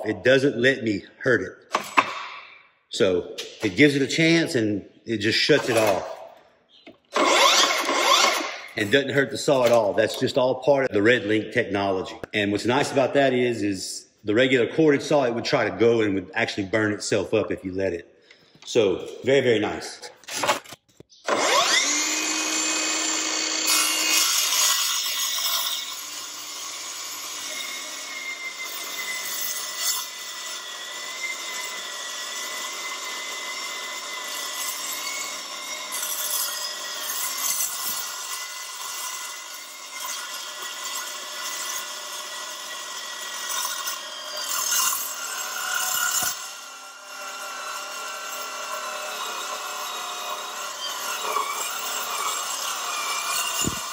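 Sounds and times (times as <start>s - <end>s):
circular saw cutting steel: 5.3s - 6.2s, 7.1s - 11.0s, 21.3s - 53.9s.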